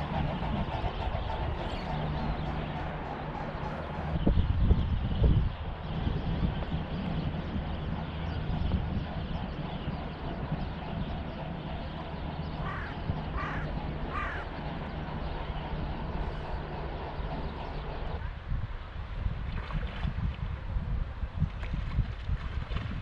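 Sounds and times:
steady low hum: 0.0s - 19.3s
wind rumble: 0.0s - 23.0s
bird calling: 9.4s - 18.2s.

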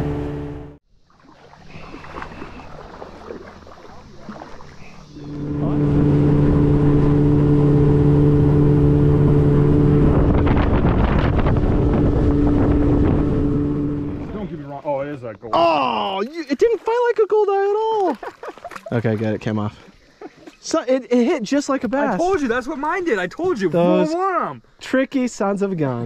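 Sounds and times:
boat motor running: 0.0s - 14.6s
wind on microphone: 5.1s - 14.5s.

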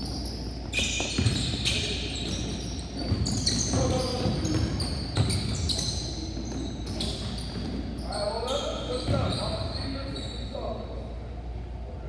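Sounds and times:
basketball bouncing on wooden floor: 0.0s - 7.8s
sneakers squeaking: 0.0s - 10.8s.

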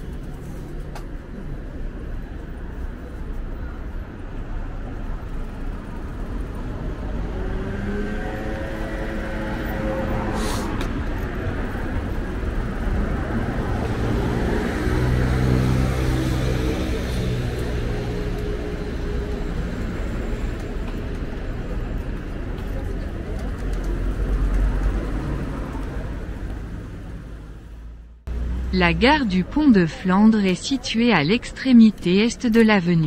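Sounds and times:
road traffic: 0.0s - 33.0s
indistinct voices: 28.6s - 33.0s.

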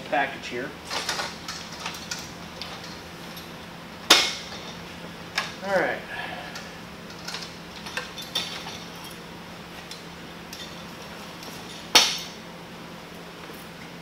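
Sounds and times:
metal frame clinking and rattling: 0.9s - 3.5s, 7.1s - 9.2s
loud metal clank: 4.1s - 4.7s.

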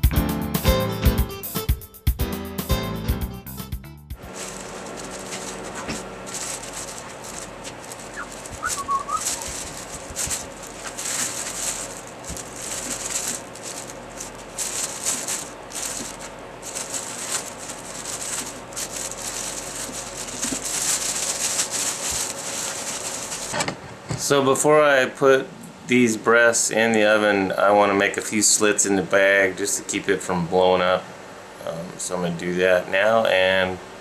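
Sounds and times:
plastic bag crinkling: 4.2s - 23.6s.

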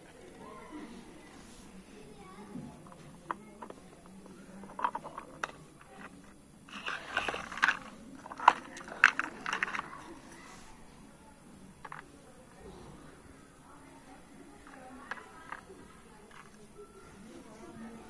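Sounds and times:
plastic toy pots clattering: 2.7s - 10.1s, 11.8s - 12.1s, 14.6s - 16.6s.

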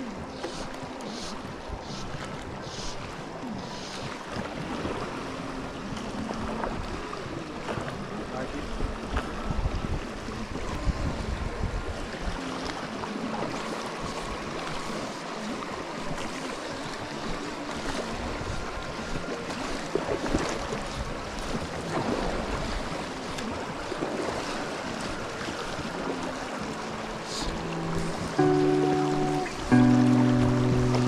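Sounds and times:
flowing river water: 0.0s - 31.0s
wind buffeting microphone: 0.1s - 12.6s.

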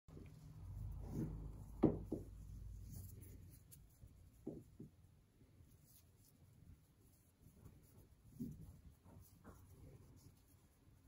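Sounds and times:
soft knocks on wooden table: 1.8s - 2.4s.

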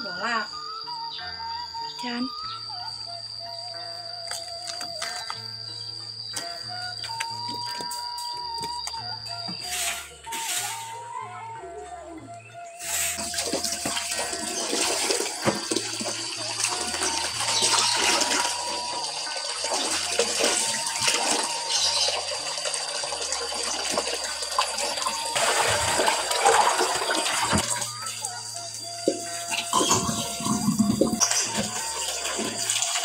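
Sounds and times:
tap water splashing into sink: 13.3s - 18.5s.

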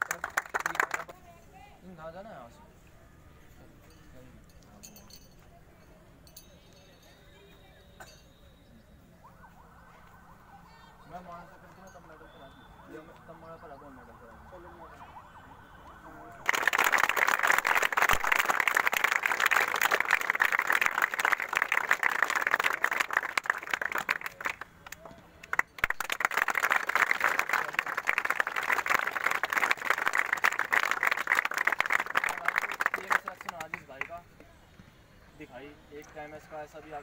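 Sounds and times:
crowd applause: 0.0s - 1.1s, 16.4s - 34.0s.

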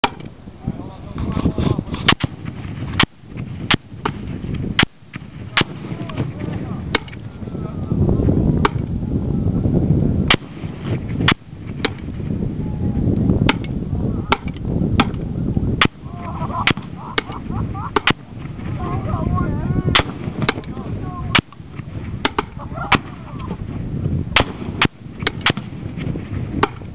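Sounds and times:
wind rumble on microphone: 0.0s - 26.9s
rifle shots: 2.0s - 7.2s, 10.3s - 12.1s, 19.9s - 20.7s, 24.3s - 26.0s.

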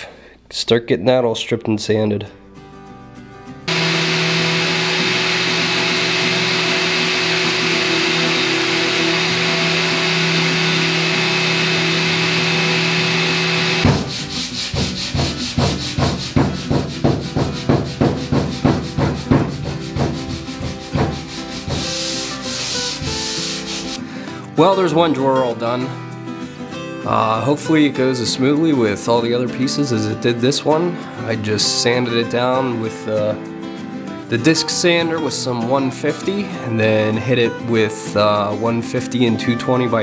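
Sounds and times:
electric disc sander running: 3.7s - 14.6s, 20.7s - 24.0s
sandpaper rubbed on wood: 3.7s - 24.0s.

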